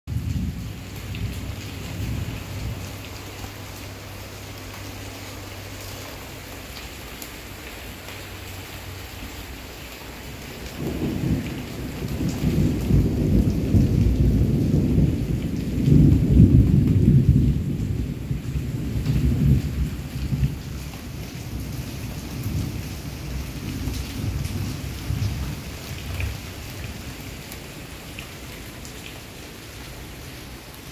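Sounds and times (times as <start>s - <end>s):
thunder rolling: 0.1s - 3.1s, 10.7s - 26.5s
rain falling on leaves: 0.1s - 30.9s.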